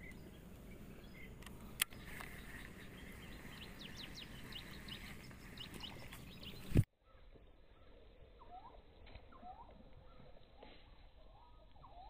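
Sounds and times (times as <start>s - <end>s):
small birds chirping: 0.0s - 6.9s
faint outdoor background noise: 0.0s - 12.0s.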